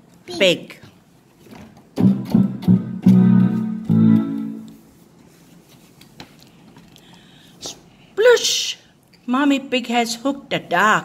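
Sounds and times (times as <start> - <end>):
electronic keyboard notes: 2.0 - 4.8.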